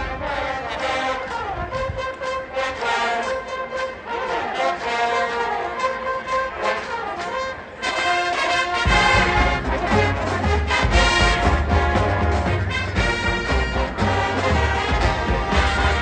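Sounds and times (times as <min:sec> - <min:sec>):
marching band playing: 0:00.0 - 0:16.0
deep low beats: 0:08.9 - 0:16.0.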